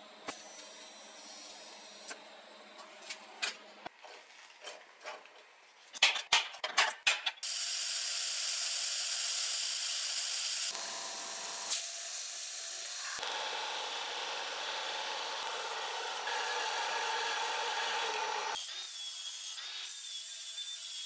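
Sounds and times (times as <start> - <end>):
drill boring into metal: 7.4 - 18.7
belt sander grinding metal: 12.8 - 18.6.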